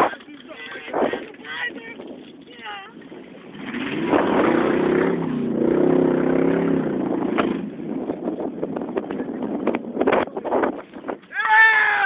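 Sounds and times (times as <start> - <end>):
car engine revving: 3.4 - 9.8.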